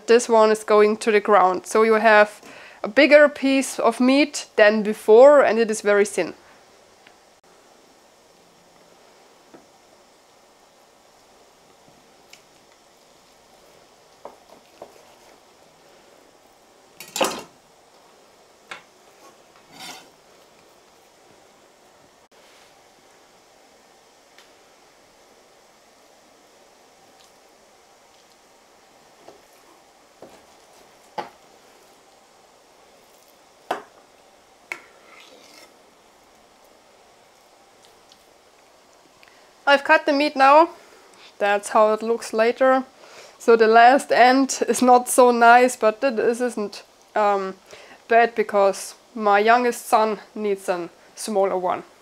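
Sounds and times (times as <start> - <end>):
knife scraping: 19.2 - 20.2, 35.0 - 35.8.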